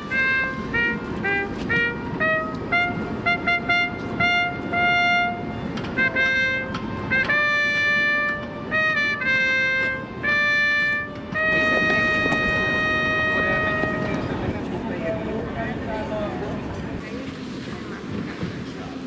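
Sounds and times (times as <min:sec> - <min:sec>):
trumpet call: 0:00.0 - 0:14.4.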